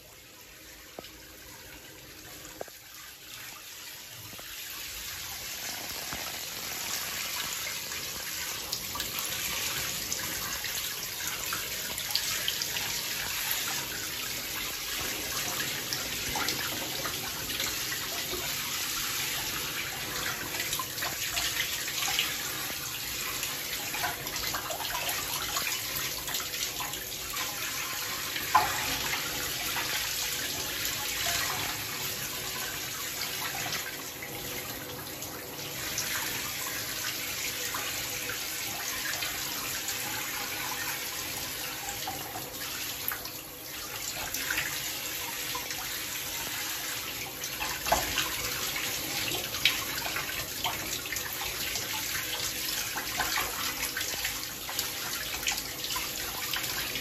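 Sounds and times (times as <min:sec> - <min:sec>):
faucet running into tub: 0:00.0 - 0:57.0.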